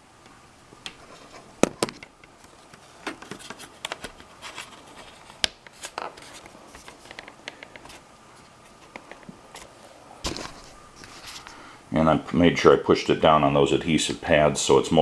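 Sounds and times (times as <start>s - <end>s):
small clicks taps and scrapes: 0.8s - 9.7s.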